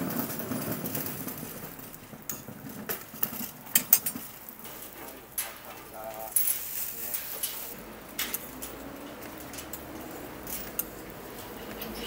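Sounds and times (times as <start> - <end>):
metal utensils clinking on griddle: 0.0 - 12.0.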